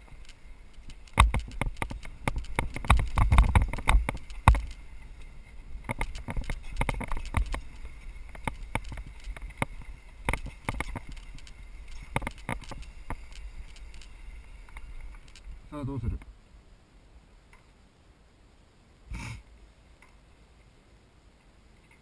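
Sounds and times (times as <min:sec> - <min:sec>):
bike knocking and rattling: 0:00.0 - 0:15.5
wind rumble on microphone: 0:00.0 - 0:16.4.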